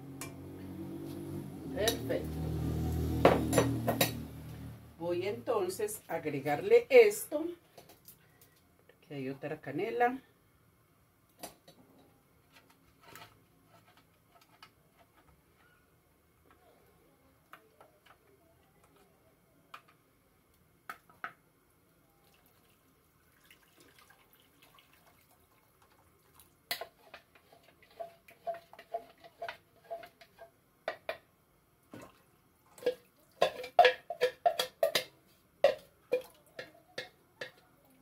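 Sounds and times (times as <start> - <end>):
liquid pouring into pot: 22.2 - 27.2, 35.7 - 37.1.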